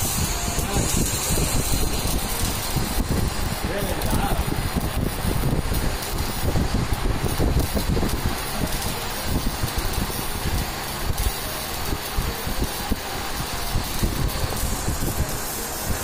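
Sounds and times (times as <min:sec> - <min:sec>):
arc welding crackle: 0:00.0 - 0:16.0.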